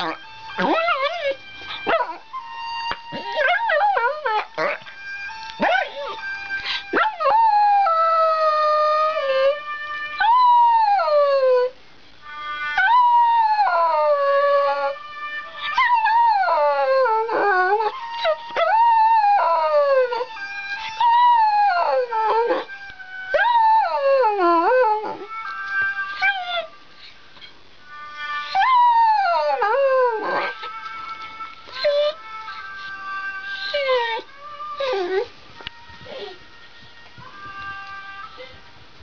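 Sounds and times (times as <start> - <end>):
dog howling: 0.0 - 4.9, 15.6 - 25.4, 28.5 - 30.8, 31.7 - 35.3.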